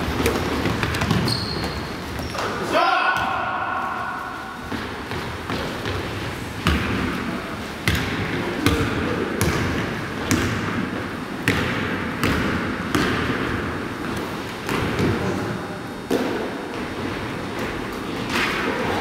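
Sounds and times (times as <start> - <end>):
gym background hum: 0.0 - 19.0
basketball bouncing on hardwood: 0.2 - 1.8, 7.8 - 8.8, 11.4 - 13.4.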